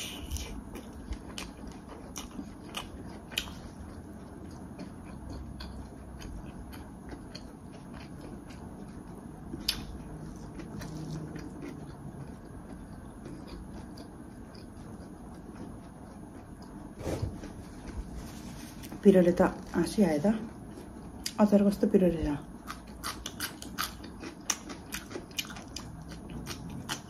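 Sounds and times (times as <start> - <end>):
person chewing food: 0.0 - 19.0, 22.6 - 27.0.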